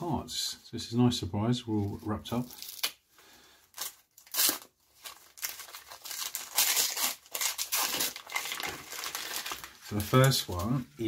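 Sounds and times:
wrapping paper crinkling and tearing: 0:01.8 - 0:03.0, 0:03.7 - 0:11.0.

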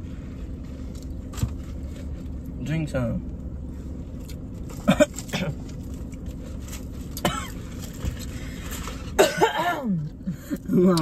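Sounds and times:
woman coughing: 0:04.8 - 0:05.6, 0:07.2 - 0:07.6, 0:09.2 - 0:10.5.

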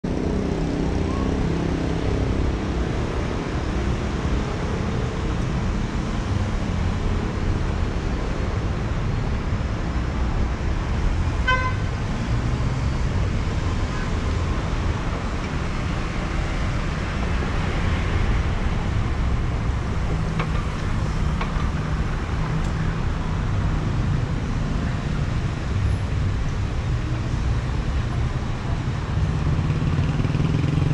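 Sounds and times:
car engines passing: 0:00.1 - 0:30.9
car horn toot: 0:11.4 - 0:11.8.

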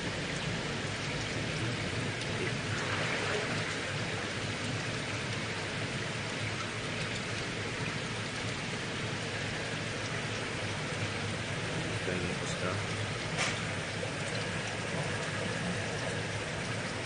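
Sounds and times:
aquarium water bubbling: 0:00.0 - 0:17.0
low steady hum: 0:00.0 - 0:17.0.

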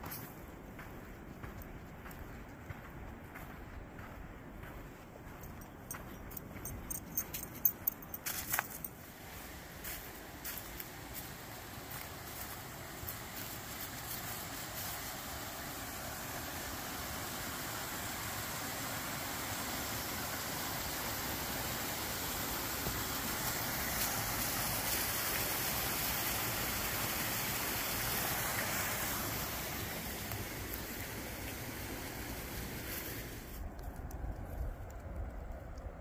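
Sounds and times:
water flowing: 0:09.1 - 0:33.6.

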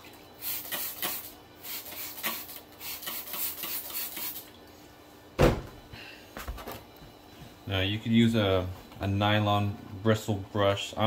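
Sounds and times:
loud thump: 0:05.4 - 0:05.8.

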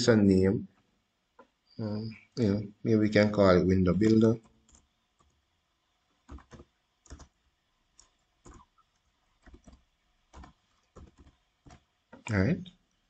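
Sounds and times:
computer keyboard keys tapped: 0:04.4 - 0:05.4, 0:06.3 - 0:07.4, 0:08.0 - 0:12.4.

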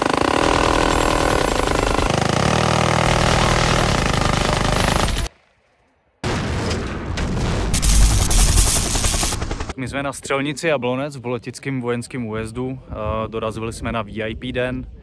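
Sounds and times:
minigun firing: 0:02.9 - 0:05.3, 0:06.3 - 0:09.8
big explosion: 0:06.2 - 0:09.1
loud gunfire: 0:07.4 - 0:09.8.

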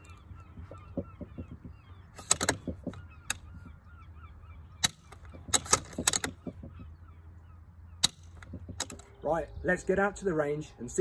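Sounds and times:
rifle bolt metallic clicks: 0:02.2 - 0:03.4, 0:04.8 - 0:06.5, 0:08.0 - 0:09.1.

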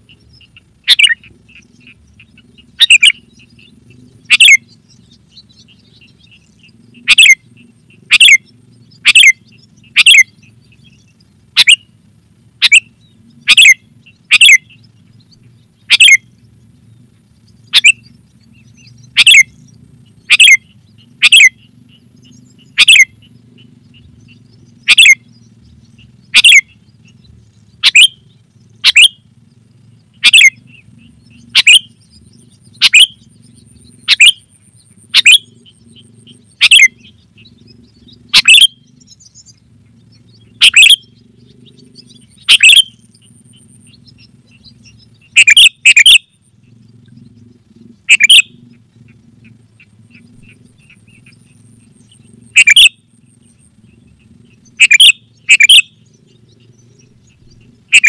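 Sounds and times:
bird call notes: 0:00.0 - 0:12.0, 0:12.6 - 0:16.8, 0:17.4 - 0:58.0.

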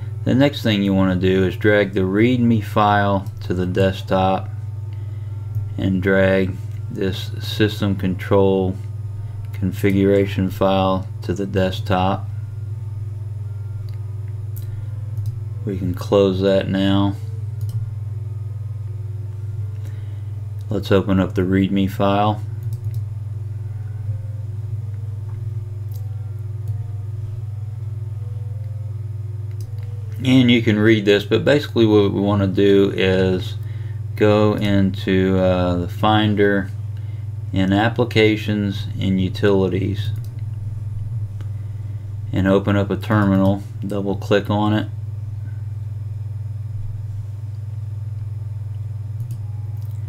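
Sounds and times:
steady low hum: 0:00.0 - 0:50.0
slow melody of pure notes: 0:22.6 - 0:30.3.

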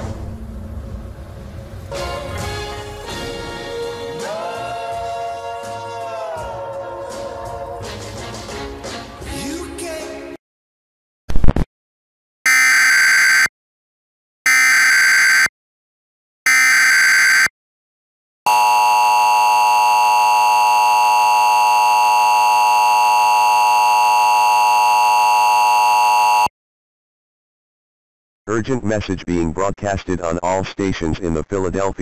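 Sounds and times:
two-tone alarm: 0:12.5 - 0:13.5, 0:14.5 - 0:15.5, 0:16.5 - 0:17.5, 0:18.5 - 0:26.5.

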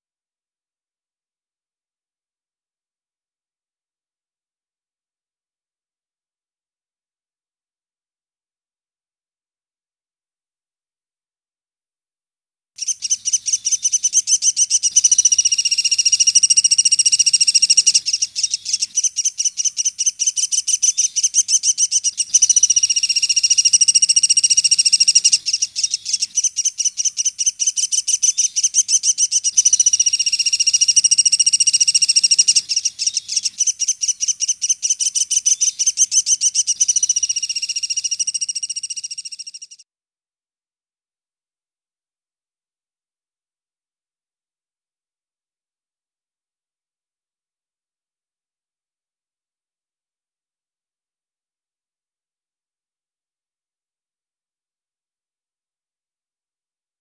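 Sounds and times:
woodpecker rapid trill: 0:12.8 - 0:39.8.

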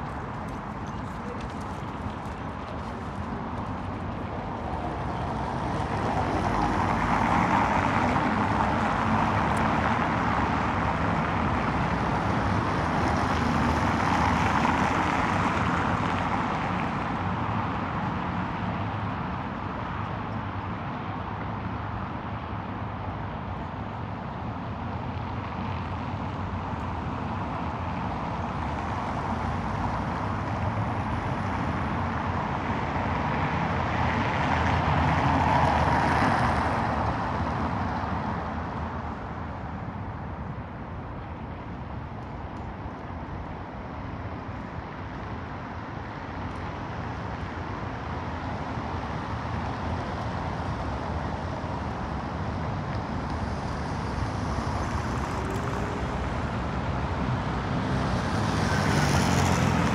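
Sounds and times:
hum of passing cars: 0:00.0 - 0:59.9
vehicle passing by: 0:54.0 - 0:59.9.

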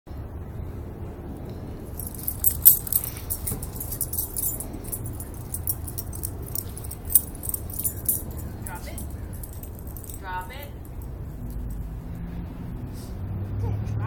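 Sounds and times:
metal dog tags jingling: 0:01.8 - 0:11.9.

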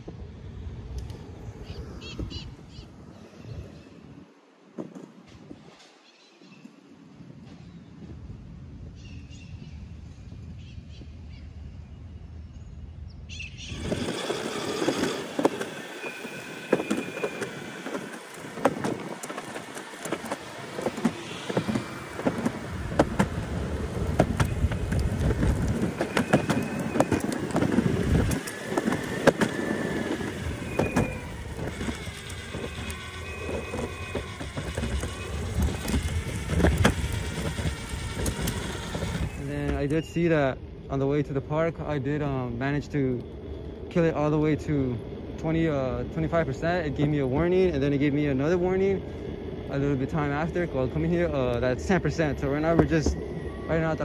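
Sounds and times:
skateboard wheels roaring on concrete: 0:00.0 - 0:05.9, 0:13.4 - 0:54.0
faint electric motor whine: 0:13.6 - 0:54.0
wheels clicking over pavement joints: 0:13.6 - 0:54.0.

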